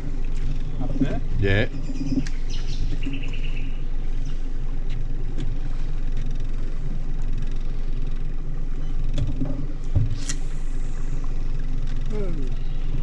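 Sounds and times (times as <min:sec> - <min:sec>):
outboard motor idling: 0:00.0 - 0:13.0
brief hiss: 0:10.1 - 0:11.5.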